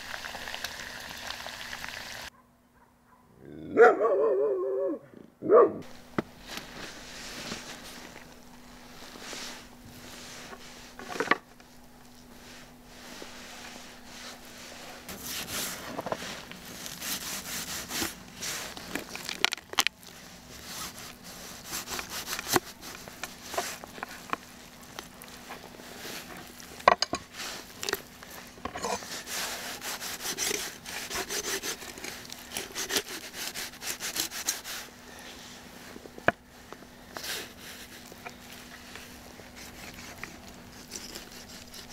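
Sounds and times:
knife cutting raw chicken: 29.8 - 34.7, 39.5 - 41.9.

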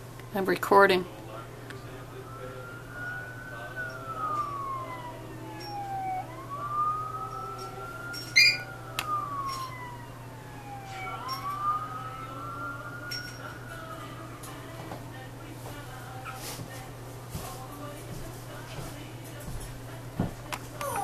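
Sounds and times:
siren wailing: 1.0 - 15.4, 20.8 - 21.0.

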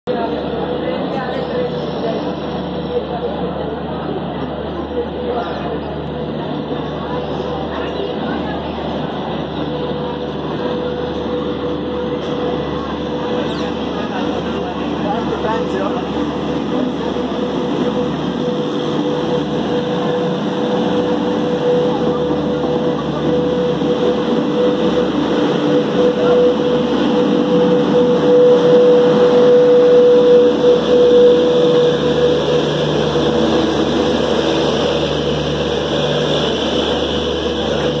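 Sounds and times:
train whine: 0.0 - 38.0
train wheels rumbling on rail: 0.1 - 38.0.

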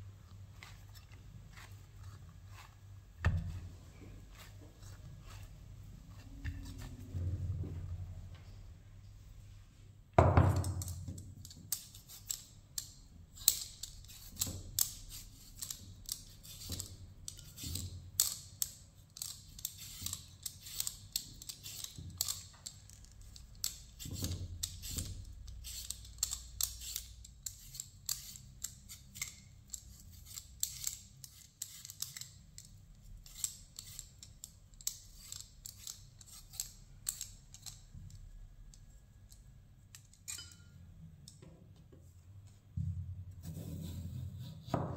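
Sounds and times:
vegetable peeler scraping potatoes: 13.4 - 17.8, 19.2 - 22.5, 23.6 - 32.4, 33.0 - 34.2, 34.9 - 37.8.

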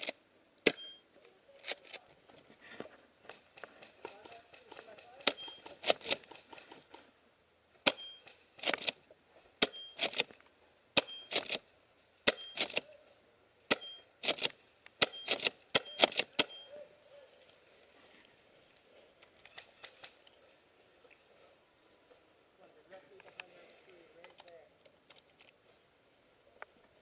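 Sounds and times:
airsoft gun firing: 7.8 - 8.9, 13.7 - 16.6.

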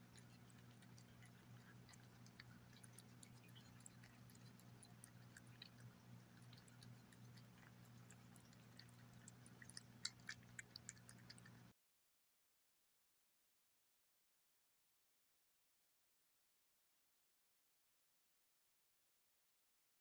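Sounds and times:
cat licking and chewing food: 0.0 - 11.7.

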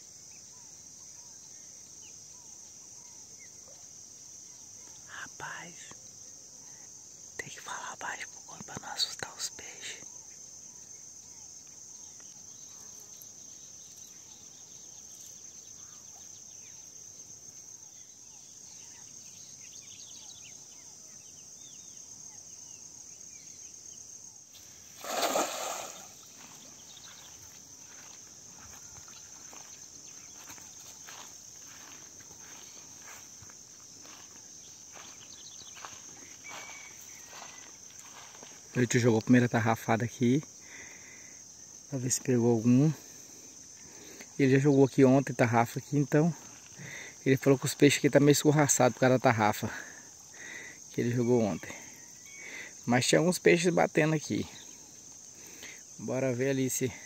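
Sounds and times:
high-pitched insect trill: 0.0 - 57.0
cast net splashing into pond: 24.6 - 26.6.

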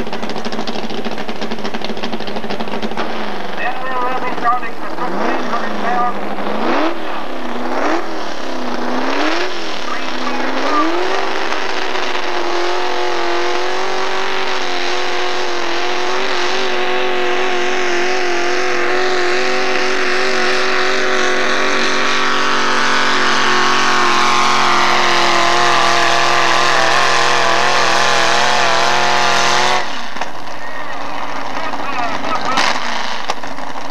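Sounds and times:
truck engine at high revs: 0.0 - 33.9.

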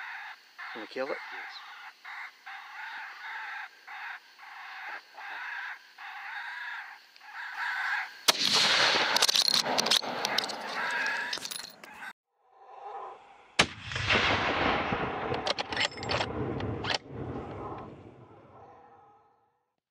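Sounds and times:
crow-like call: 0.0 - 8.3, 10.2 - 12.1
rifle shot: 8.3 - 10.0, 13.6 - 17.3.

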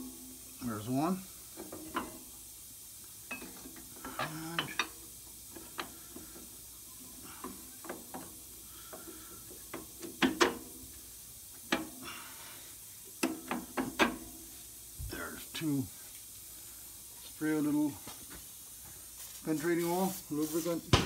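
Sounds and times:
metal bolts clinking: 3.3 - 5.0.

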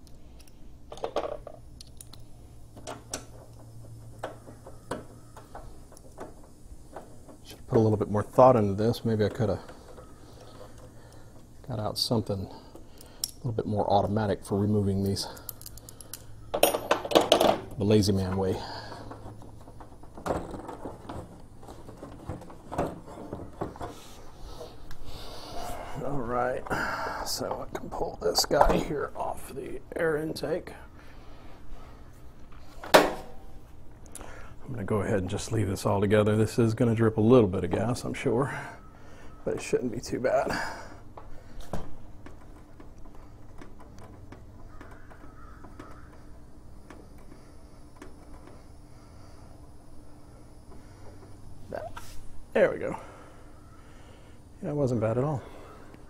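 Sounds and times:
light clicks and knocks of tools: 14.9 - 24.0, 41.1 - 48.7.

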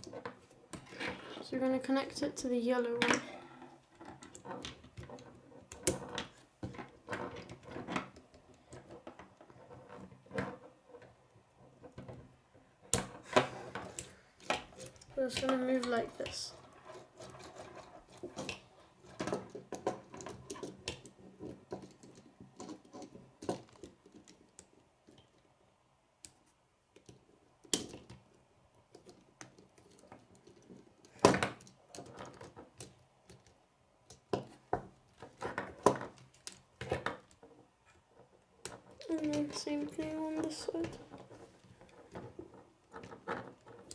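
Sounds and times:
plastic pieces clicking and rattling: 12.9 - 25.4, 28.9 - 37.4.

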